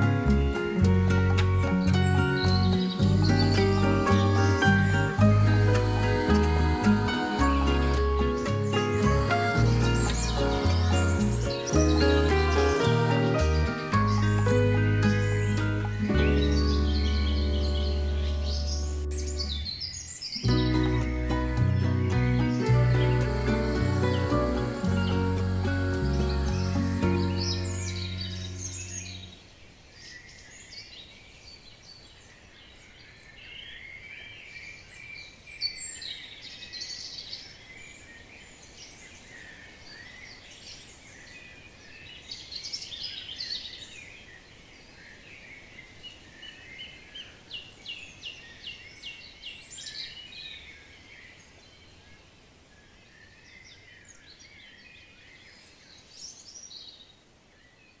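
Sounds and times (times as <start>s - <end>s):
background music: 0.0s - 19.7s, 20.4s - 29.4s
birds singing and chirping: 0.0s - 52.3s
faint steady hiss: 0.0s - 58.0s.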